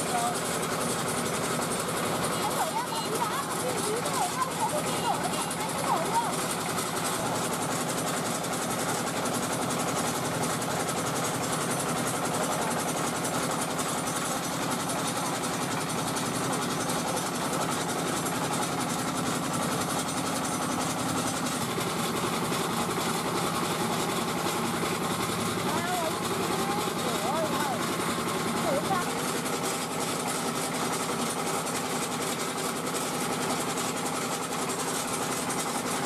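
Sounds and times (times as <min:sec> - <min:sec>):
diesel engine chugging: 0:00.0 - 0:36.0.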